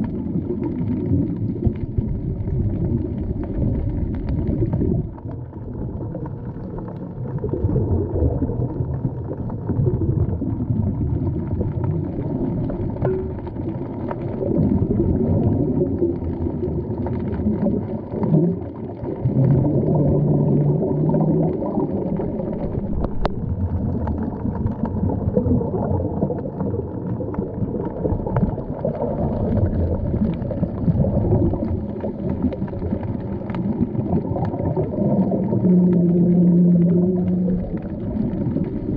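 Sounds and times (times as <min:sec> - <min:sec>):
underwater rumbling and gurgling: 0:00.0 - 0:38.9.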